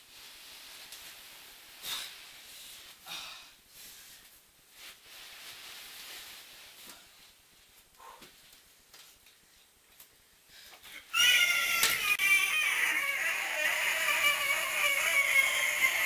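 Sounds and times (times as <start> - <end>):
body dragged across carpet: 0.0 - 3.0, 3.8 - 7.8.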